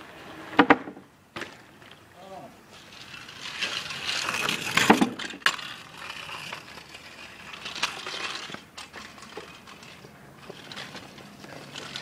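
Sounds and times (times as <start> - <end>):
scooter wheels rolling: 0.0 - 12.0
scooter landing with clatter: 0.5 - 2.0, 2.9 - 12.0.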